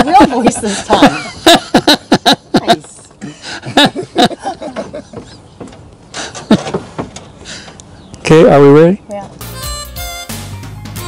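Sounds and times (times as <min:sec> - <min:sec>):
man laughing heartily: 0:00.0 - 0:05.4.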